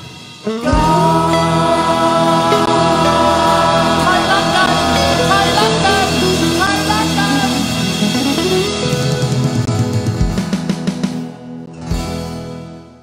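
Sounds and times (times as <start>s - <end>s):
acoustic guitar: 0.0s - 13.0s
group of people singing: 0.6s - 7.8s.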